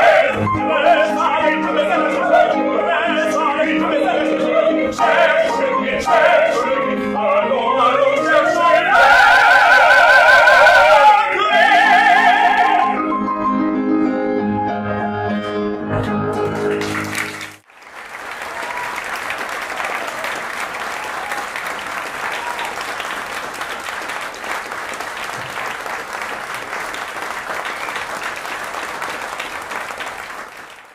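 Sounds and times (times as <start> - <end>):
operatic voices singing: 0.0 - 13.0
piano chords: 0.0 - 17.6
audience applauding: 16.3 - 30.9.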